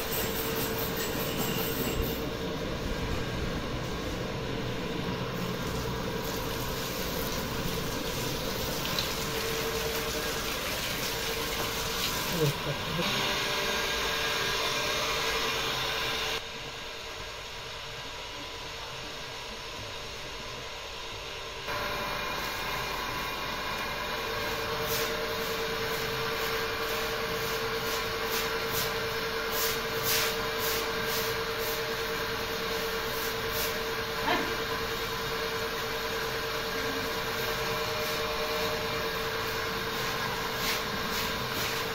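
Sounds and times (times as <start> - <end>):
steady hum: 0.0 - 10.7
water running from a hose: 5.4 - 13.0
broom swishing on wet floor: 26.4 - 31.9, 39.8 - 41.9.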